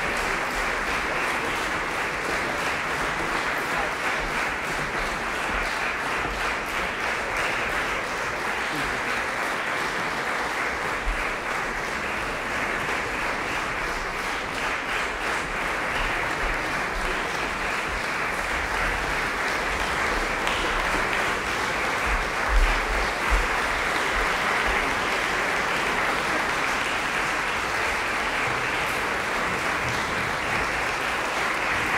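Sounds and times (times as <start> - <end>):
audience applauding: 0.0 - 31.9.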